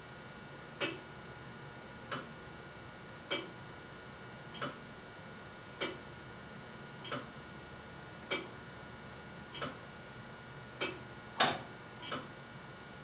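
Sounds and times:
clock mechanism ticking: 0:00.8 - 0:01.0, 0:03.3 - 0:03.5, 0:04.6 - 0:04.8, 0:05.8 - 0:06.0, 0:07.0 - 0:07.3, 0:08.3 - 0:08.5, 0:09.5 - 0:09.8, 0:10.8 - 0:12.3.

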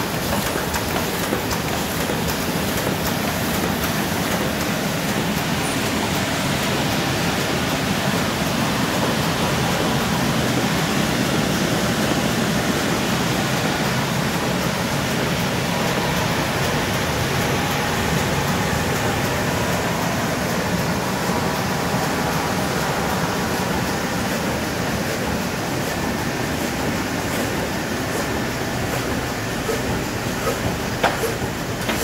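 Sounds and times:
laminating machine running: 0:00.0 - 0:32.0.

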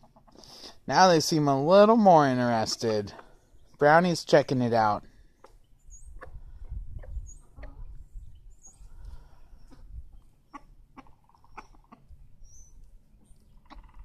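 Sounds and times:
chickens clucking: 0:00.0 - 0:00.7, 0:02.2 - 0:04.0, 0:05.4 - 0:08.0, 0:08.7 - 0:12.2, 0:13.2 - 0:14.0.

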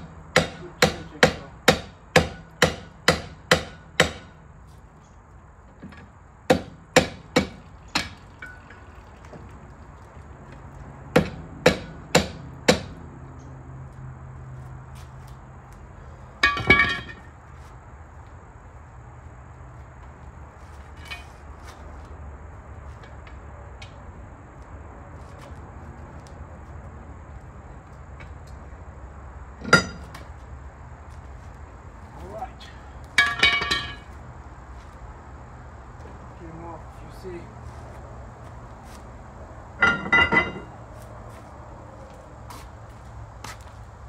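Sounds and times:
ringing metallic clatter: 0:07.9 - 0:09.0, 0:16.4 - 0:17.4, 0:29.6 - 0:30.2, 0:33.2 - 0:34.1, 0:39.8 - 0:40.7.

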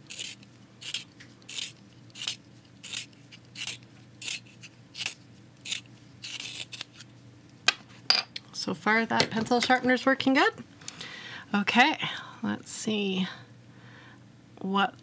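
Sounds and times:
pencil being sharpened: 0:00.0 - 0:07.0.

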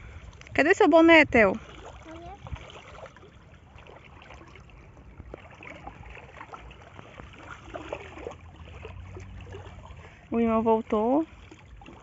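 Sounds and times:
water drips and splashes: 0:00.0 - 0:12.0
water trickling and lapping: 0:00.0 - 0:12.0.

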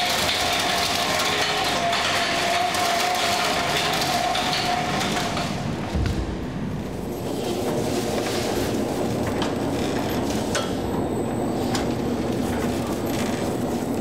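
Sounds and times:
metal rack rumbling and rattling: 0:00.0 - 0:10.8
machine hum: 0:00.0 - 0:14.0.

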